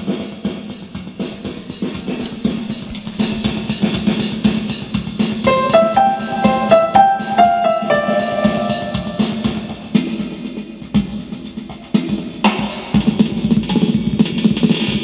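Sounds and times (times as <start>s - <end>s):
electronic drum beat: 5.5s - 10.0s
keyboard notes: 5.5s - 10.0s.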